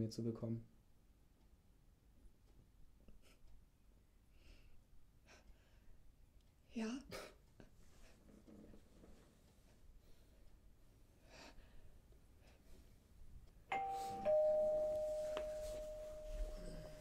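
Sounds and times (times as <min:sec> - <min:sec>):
two-tone doorbell chime: 0:13.7 - 0:17.0.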